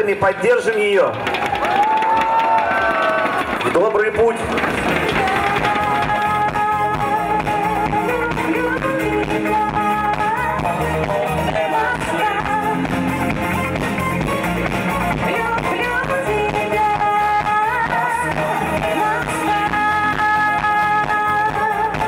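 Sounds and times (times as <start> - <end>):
woman singing into a microphone: 5.1 - 13.0, 15.2 - 22.0
band music with steady beat: 5.2 - 22.0.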